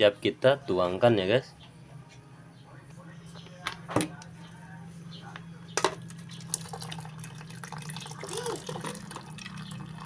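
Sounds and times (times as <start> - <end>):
tea pouring and splashing: 6.1 - 10.0.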